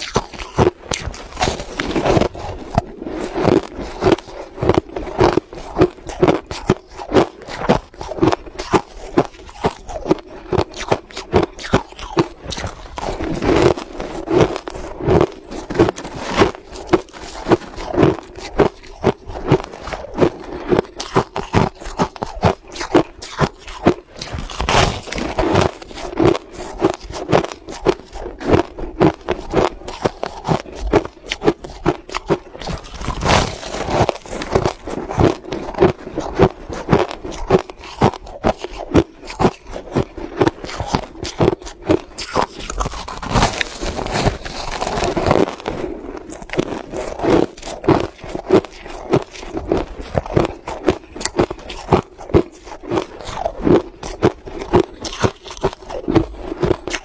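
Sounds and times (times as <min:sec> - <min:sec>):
crushed ice being chewed: 0:00.0 - 0:57.0.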